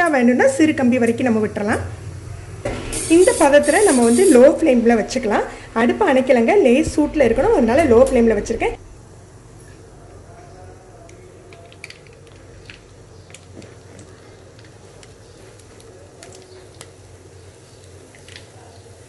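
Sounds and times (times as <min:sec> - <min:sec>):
batter sizzling in hot oil: 0:02.7 - 0:04.7
oil popping and crackling: 0:11.1 - 0:18.6.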